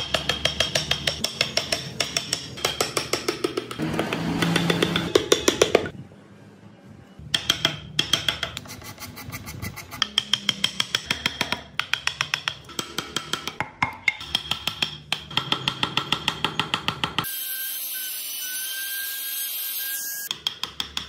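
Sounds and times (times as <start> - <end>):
chisel tapping into wood: 7.3 - 8.6.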